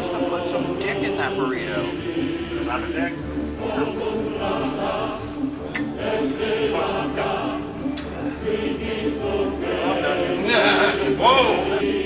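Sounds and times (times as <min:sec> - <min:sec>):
choir singing sustained notes: 0:00.0 - 0:12.0.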